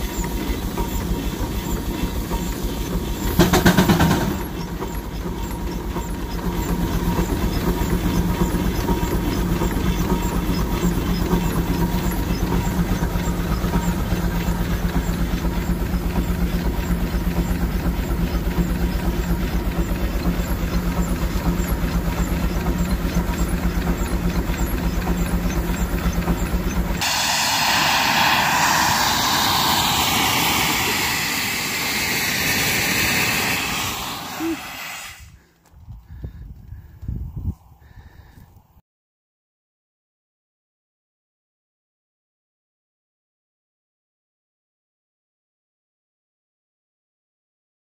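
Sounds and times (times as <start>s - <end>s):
steam hissing: 0.0s - 35.4s
steam engine exhaust chuffing: 0.0s - 35.6s
steady engine hum: 0.0s - 38.8s.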